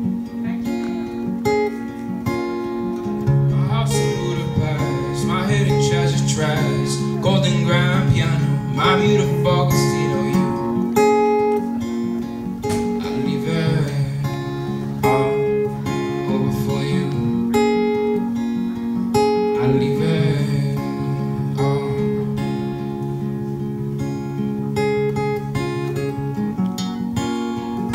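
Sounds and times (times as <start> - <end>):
acoustic guitar strummed: 0.0 - 27.9
young man singing: 3.3 - 11.0, 12.6 - 18.4, 19.4 - 22.7.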